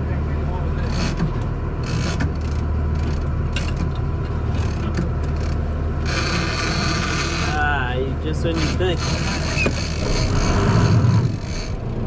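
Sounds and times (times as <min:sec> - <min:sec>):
boat engine droning: 0:00.0 - 0:12.0
fishing reel clicking and scraping: 0:01.8 - 0:03.8, 0:04.6 - 0:07.6, 0:08.4 - 0:11.8.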